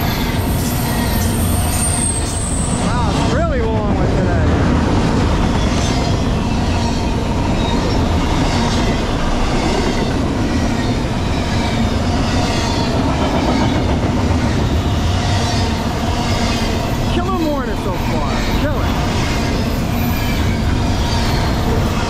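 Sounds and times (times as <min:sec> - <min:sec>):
freight train wheels rumbling: 0:00.0 - 0:22.0
wheels clickety-clack: 0:07.4 - 0:15.6.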